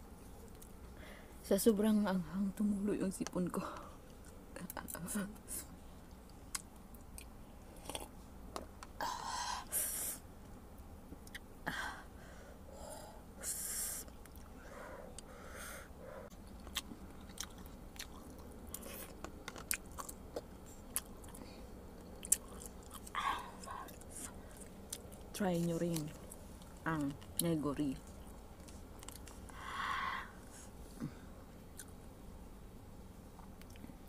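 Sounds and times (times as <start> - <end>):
chewing and lip smacks: 14.1 - 15.3, 16.3 - 29.6.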